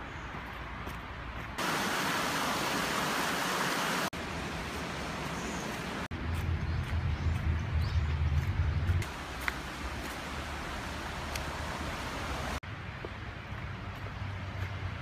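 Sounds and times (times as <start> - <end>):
open-air noise: 0.0 - 15.0
stream water rushing: 1.6 - 6.1, 9.0 - 12.6.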